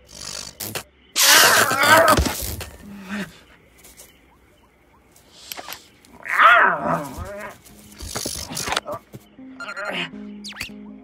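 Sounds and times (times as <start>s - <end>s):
crackling electric zap: 0.0s - 1.7s
creature yowling: 1.2s - 2.3s, 6.2s - 7.6s.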